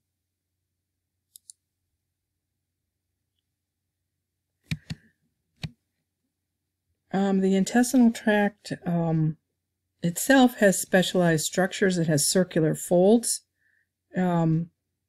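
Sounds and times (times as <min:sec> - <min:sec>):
computer mouse clicks: 0:01.3 - 0:01.6, 0:04.7 - 0:05.8.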